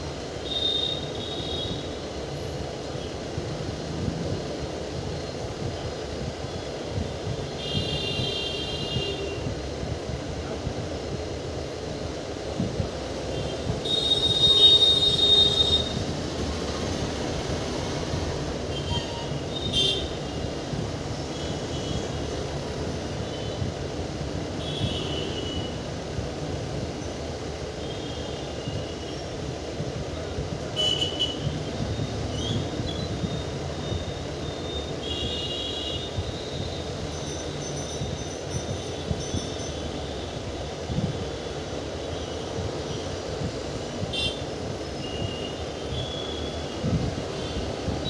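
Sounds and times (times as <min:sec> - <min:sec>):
train rumbling: 0:00.0 - 0:48.0
steel wheel squeal: 0:36.2 - 0:40.0.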